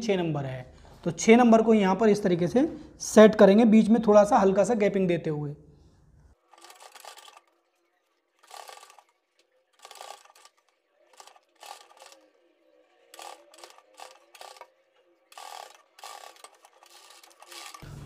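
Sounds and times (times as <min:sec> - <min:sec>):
sewing machine stitching: 0:06.5 - 0:07.6, 0:08.3 - 0:09.1, 0:09.7 - 0:12.3, 0:13.1 - 0:14.7, 0:15.3 - 0:17.9.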